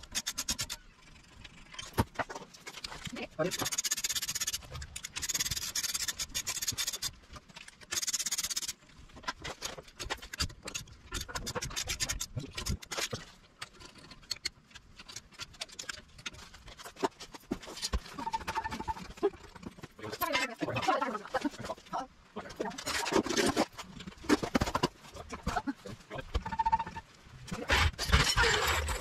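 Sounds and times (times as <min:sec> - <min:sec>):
socket ratchet clicking: 0:07.9 - 0:08.8.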